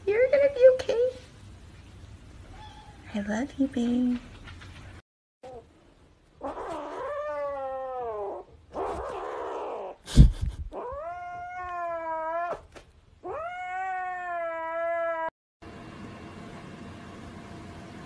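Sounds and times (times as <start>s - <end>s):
kitten meowing: 13.2s - 15.3s.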